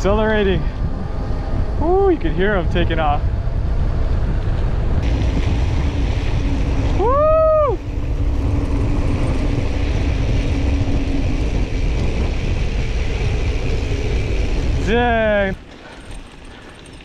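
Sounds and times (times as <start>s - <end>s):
bike tyre noise on dirt: 0.0s - 17.0s
wind buffeting microphone: 0.0s - 17.0s
high whoop: 7.0s - 7.8s.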